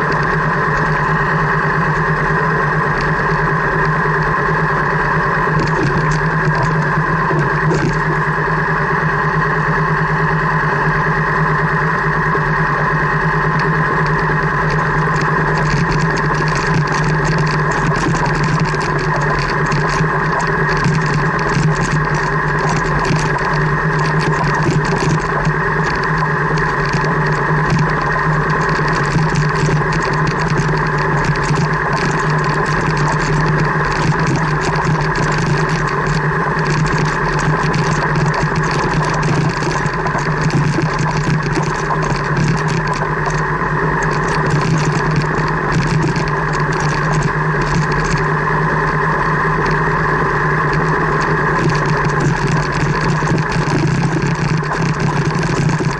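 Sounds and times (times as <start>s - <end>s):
car engine running: 0.0s - 9.8s, 11.9s - 55.9s.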